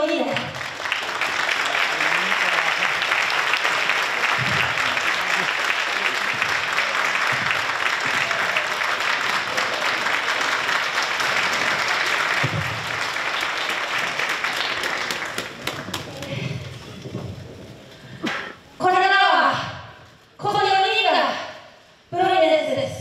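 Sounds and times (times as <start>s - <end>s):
crowd applauding: 0.0s - 17.2s.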